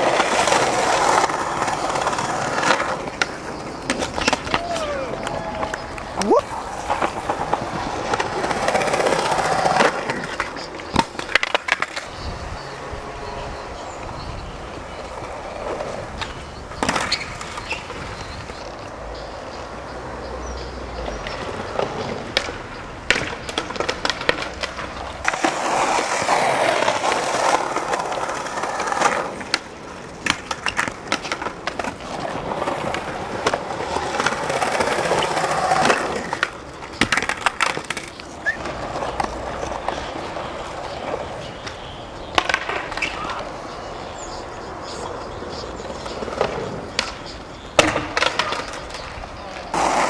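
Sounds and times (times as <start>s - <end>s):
skateboard clacking on ground: 0.0s - 50.0s
skateboard wheels rolling on concrete: 0.0s - 50.0s.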